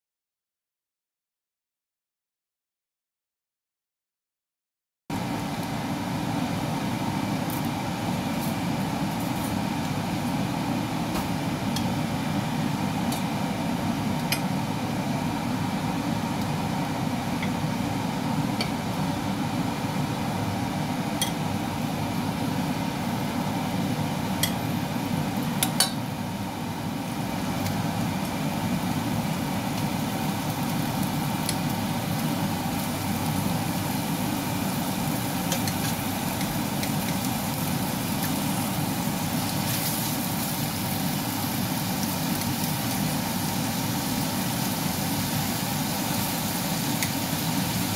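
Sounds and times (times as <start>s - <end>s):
low mechanical hum: 5.1s - 47.9s
tongs clinking on frying pan: 21.2s - 21.4s, 24.4s - 24.6s, 25.6s - 26.0s.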